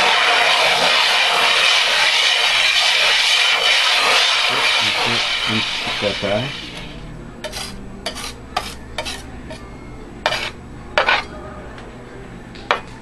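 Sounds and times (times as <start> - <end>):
spatula scraping on glass plate: 7.4 - 9.6, 10.2 - 11.3.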